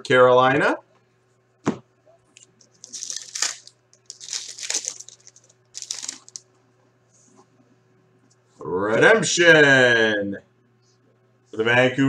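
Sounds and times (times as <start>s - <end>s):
cards rustling: 2.6s - 6.4s
foil wrapper tearing and crinkling: 2.7s - 6.4s.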